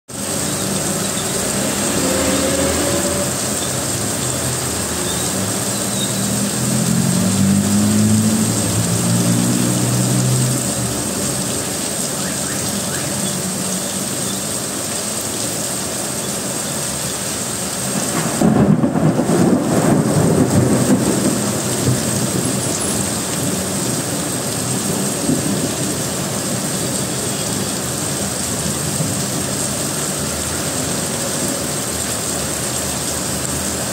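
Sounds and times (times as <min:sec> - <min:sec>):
heavy rain pouring: 0:00.1 - 0:33.9
vehicles driving through water: 0:00.1 - 0:33.9
vehicle engine humming past: 0:00.3 - 0:13.8.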